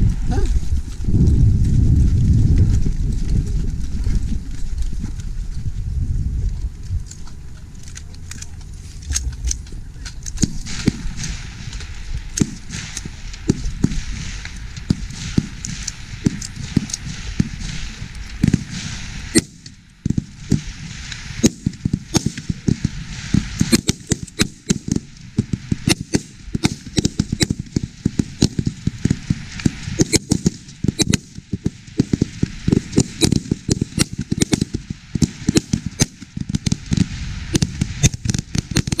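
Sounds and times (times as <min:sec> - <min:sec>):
rifles firing: 0:21.4 - 0:39.0.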